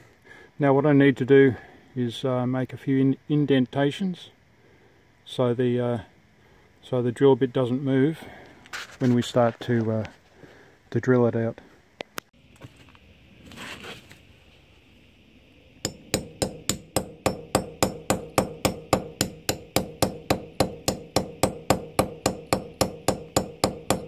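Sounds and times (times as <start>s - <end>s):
hammer tapping nail on brick: 15.9s - 24.0s.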